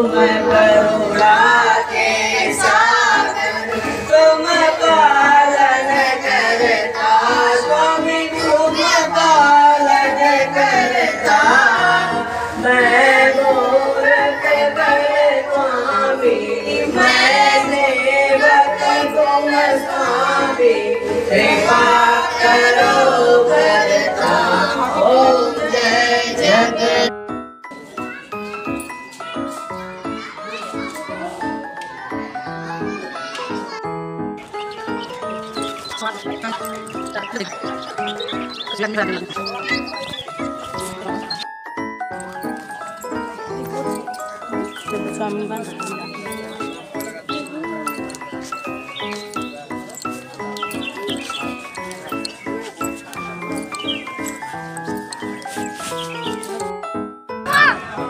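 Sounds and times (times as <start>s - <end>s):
song with singing and instruments: 0.0s - 27.2s.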